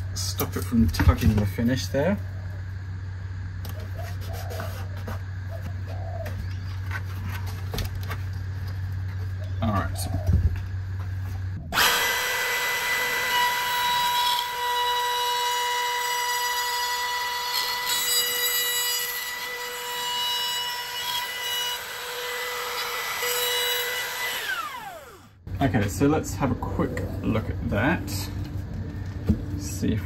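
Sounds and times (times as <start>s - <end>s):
router whining: 11.6s - 25.4s.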